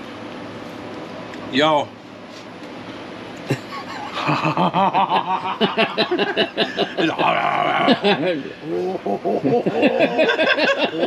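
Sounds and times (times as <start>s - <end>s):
man laughing hard: 3.5s - 11.0s.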